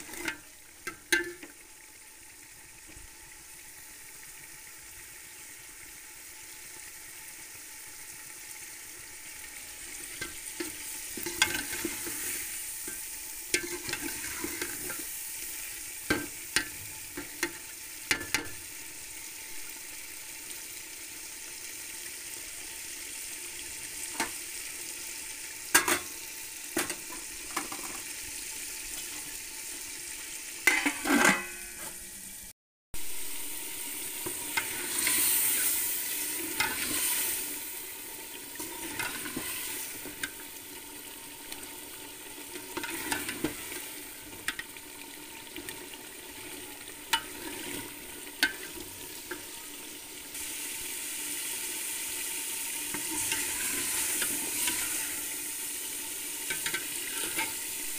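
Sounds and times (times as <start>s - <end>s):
food sizzling in oil: 0.0s - 57.9s
metal ladle clinking against pot: 30.7s - 31.8s.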